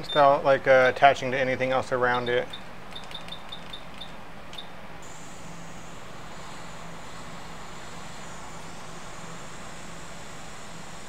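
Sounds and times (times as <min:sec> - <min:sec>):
hot air station hissing: 0:05.0 - 0:11.0.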